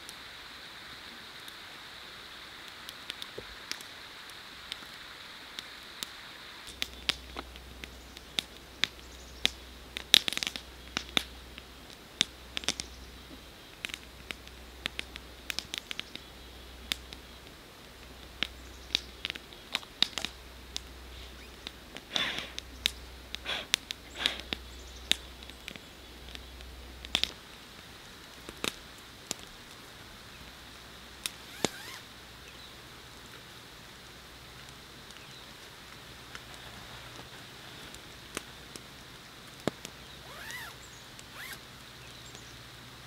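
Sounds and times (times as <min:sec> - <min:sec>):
campfire crackling and popping: 0:00.0 - 0:43.0.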